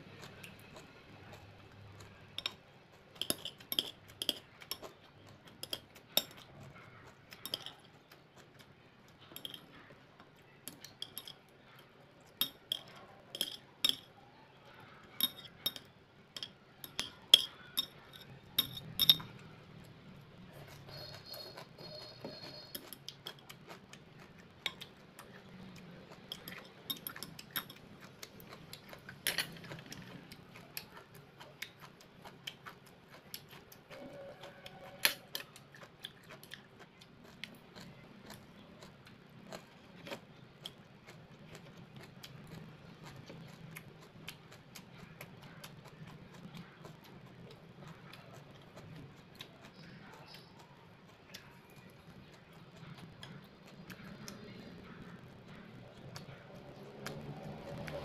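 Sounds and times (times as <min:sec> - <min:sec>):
chewing: 0:00.0 - 0:58.0
utensils clicking on ceramic bowls: 0:02.4 - 0:06.6, 0:07.4 - 0:07.9, 0:09.2 - 0:09.9, 0:10.6 - 0:11.8, 0:12.4 - 0:14.1, 0:15.1 - 0:19.4, 0:26.2 - 0:28.2, 0:28.8 - 0:30.1.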